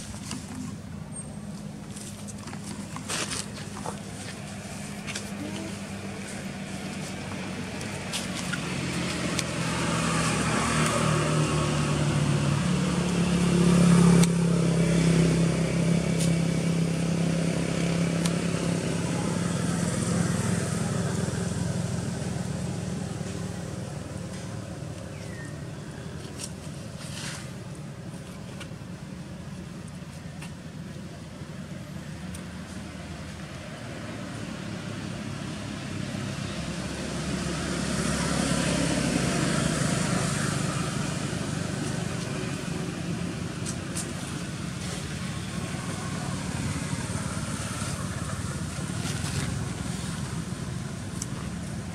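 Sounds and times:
vehicle driving past: 8.3s - 24.6s, 34.5s - 51.5s.

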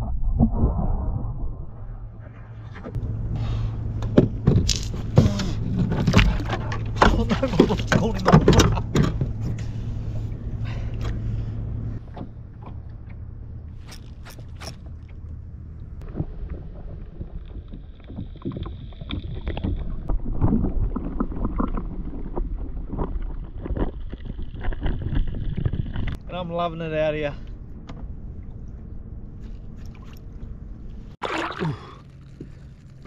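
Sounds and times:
wind noise: 0.0s - 3.2s, 16.0s - 26.2s
low rumble: 0.0s - 33.0s
water noise: 0.0s - 33.0s.

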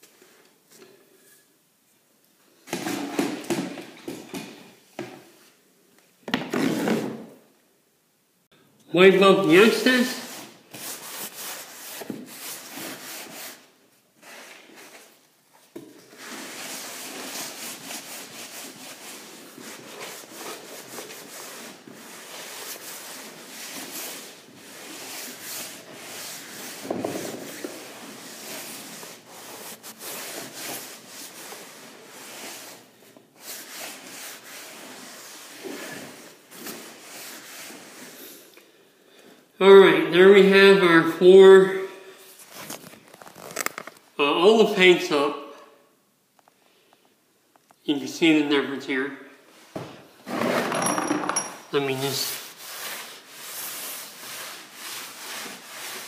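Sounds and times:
towel rubbing wet wooden floor: 16.1s - 38.2s, 52.2s - 56.0s.

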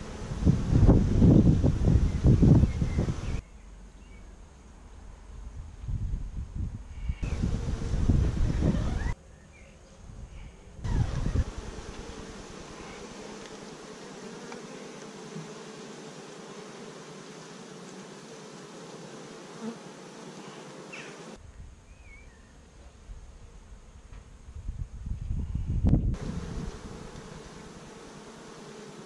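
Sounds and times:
honey bees buzzing: 0.0s - 3.4s, 7.2s - 9.2s, 10.8s - 21.4s, 26.1s - 29.0s.

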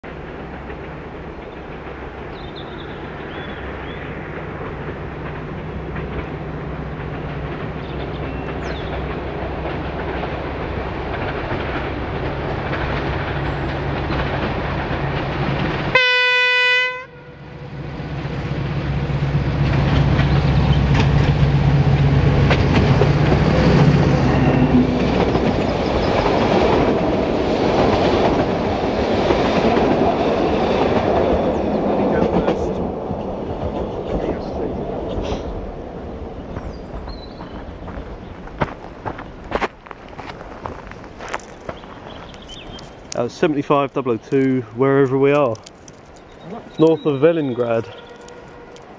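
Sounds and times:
diesel locomotive engine: 0.0s - 48.9s
carriages clattering over rail joints: 0.1s - 16.5s, 18.2s - 48.9s
locomotive horn blast: 15.9s - 17.6s, 47.6s - 48.9s.

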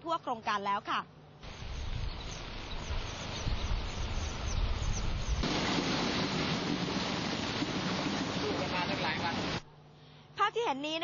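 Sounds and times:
wind buffeting microphone: 1.5s - 9.6s
rushing floodwater: 5.4s - 9.6s.

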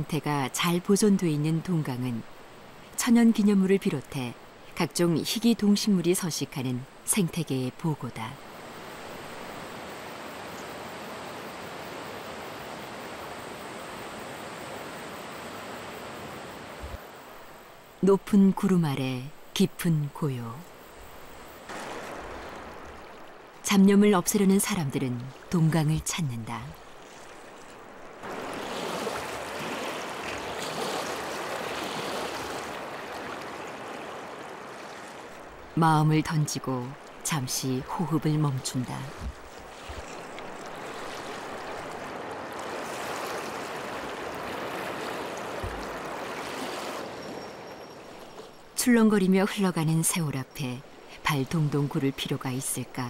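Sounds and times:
river water rushing: 8.4s - 17.8s, 21.1s - 48.8s
river rushing over stones: 21.7s - 23.6s, 27.0s - 35.7s.

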